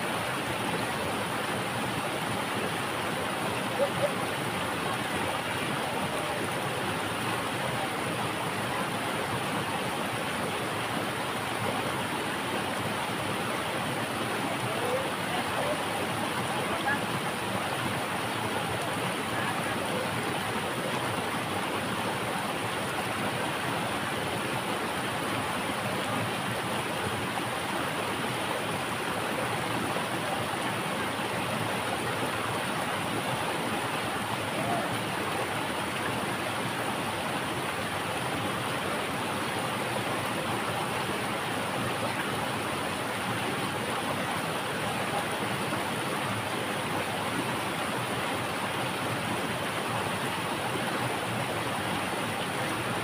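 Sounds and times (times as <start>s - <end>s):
stream rushing over rocks: 0.0s - 53.0s.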